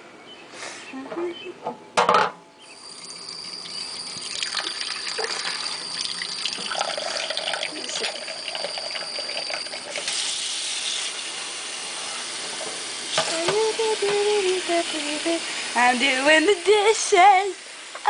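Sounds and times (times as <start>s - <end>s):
faucet water splashing in sink: 2.8s - 11.8s.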